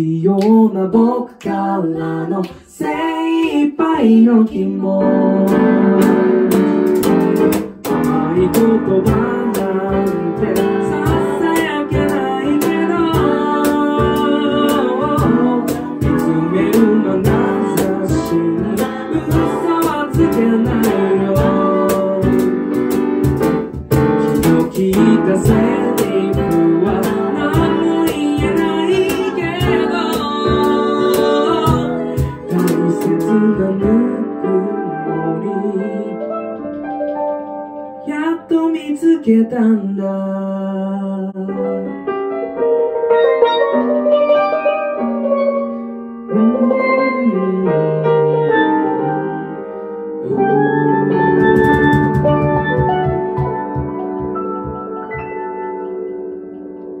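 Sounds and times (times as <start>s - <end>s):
male and female voices singing: 0.0s - 6.0s, 7.9s - 22.7s, 24.2s - 36.2s, 50.2s - 53.5s
piano: 0.0s - 57.0s
cajon: 5.5s - 34.1s, 50.9s - 55.6s.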